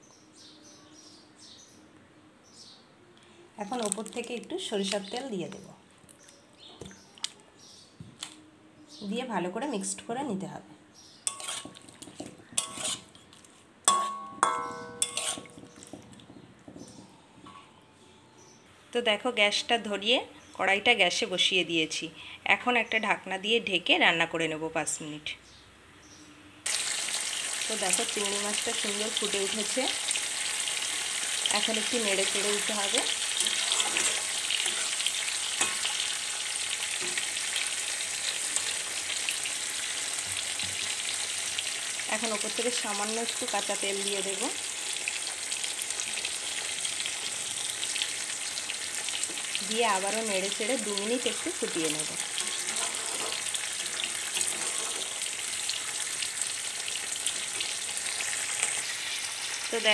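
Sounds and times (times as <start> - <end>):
curry sizzling and bubbling: 11.2 - 17.6, 26.6 - 59.9
utensil clinking against pan: 11.3 - 13.1, 13.9 - 15.9
metal utensil stirring in pan: 11.3 - 16.2, 32.2 - 37.4, 52.2 - 55.4.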